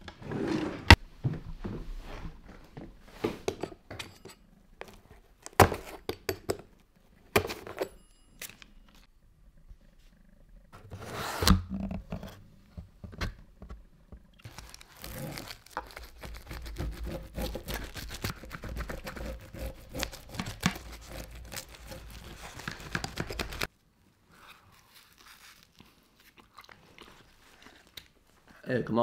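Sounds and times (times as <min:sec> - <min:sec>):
pizza cutter crunching through crust: 0:14.4 - 0:23.7.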